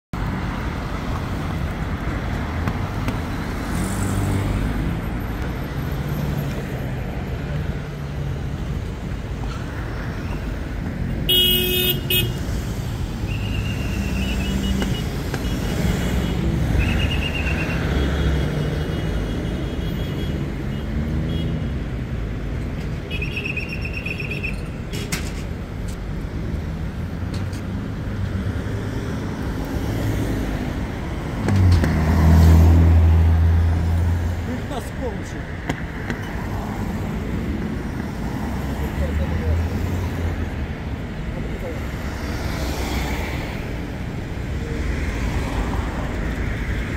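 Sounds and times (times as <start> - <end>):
road traffic passing: 0.1 - 46.9
car horns tooting: 11.3 - 12.4.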